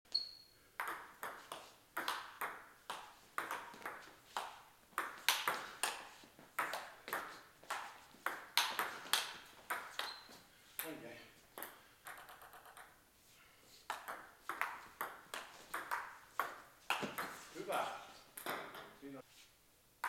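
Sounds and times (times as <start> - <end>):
table tennis ball clicking: 5.0 - 6.0, 8.2 - 10.2, 11.6 - 13.0.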